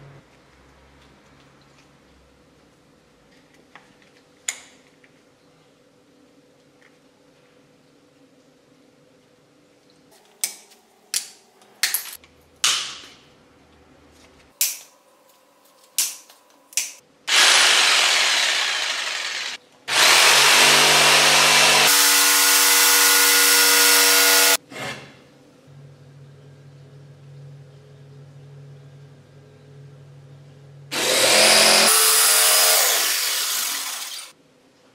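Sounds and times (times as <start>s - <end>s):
jigsaw sawing through wood: 17.3s - 24.6s, 30.9s - 34.3s.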